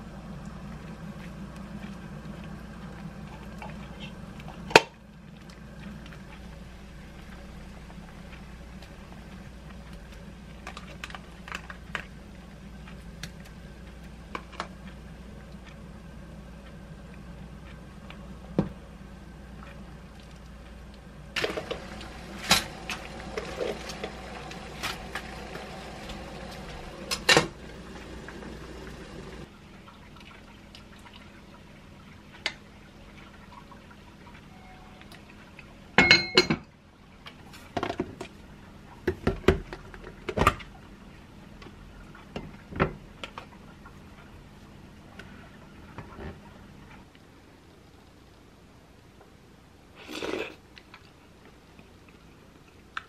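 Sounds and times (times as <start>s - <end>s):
steady low hum: 0.0s - 50.0s
utensils clinking on pot and bowls: 36.0s - 36.6s.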